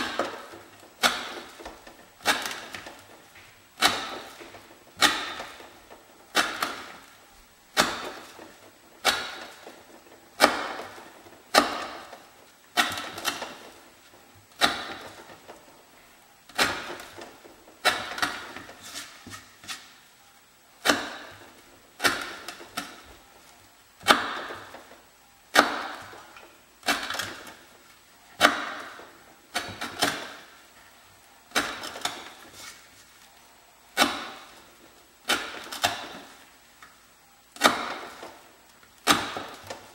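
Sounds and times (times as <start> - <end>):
knife chopping rope into wood: 0.0 - 3.0, 3.8 - 5.7, 6.3 - 7.0, 7.8 - 8.4, 9.0 - 9.8, 10.4 - 12.1, 14.6 - 15.2, 17.8 - 19.9, 20.8 - 21.4, 22.0 - 23.0, 25.5 - 26.2, 28.4 - 30.5, 31.5 - 32.8, 34.0 - 34.6, 35.3 - 36.3, 37.6 - 38.3, 39.0 - 39.8.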